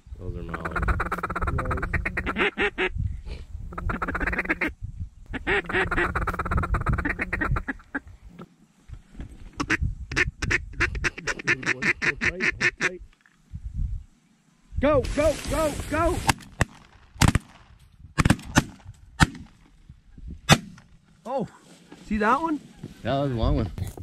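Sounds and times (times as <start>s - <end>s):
duck quacking: 0.5s - 2.9s, 3.7s - 4.7s, 5.3s - 8.5s, 9.6s - 13.0s.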